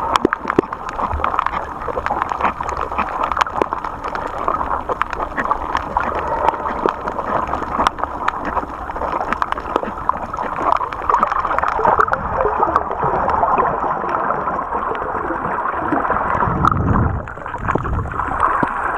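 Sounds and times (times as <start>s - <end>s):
sharp underwater clicks: 0.0s - 13.4s
low water surge: 0.0s - 18.9s
underwater watery rush: 0.0s - 18.9s.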